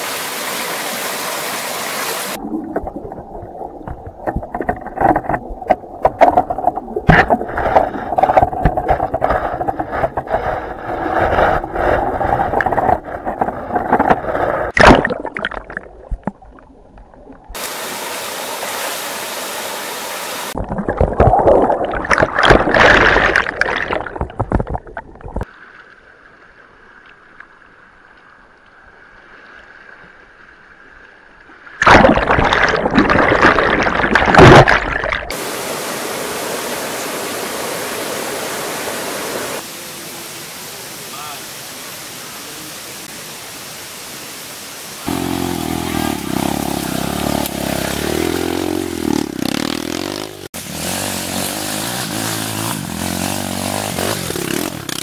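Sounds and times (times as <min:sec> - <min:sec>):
water gurgling and splashing: 0:00.0 - 0:19.4, 0:20.4 - 0:25.6, 0:31.8 - 0:39.6.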